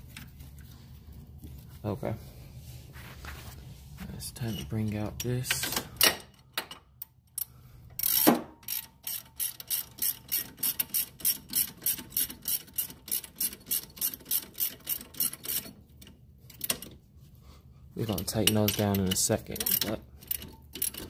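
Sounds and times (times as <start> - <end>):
ratchet wrench clicking: 7.3 - 15.7, 18.2 - 21.0.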